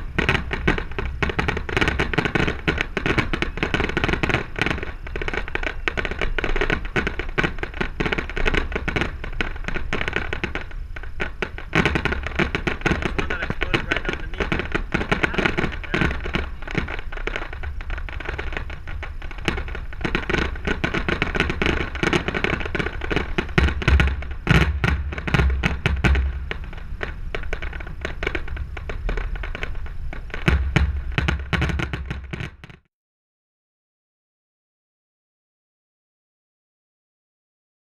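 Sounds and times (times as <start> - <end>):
heavy firework booms: 0.0 - 32.8
fireworks bangs and crackling: 0.0 - 32.9.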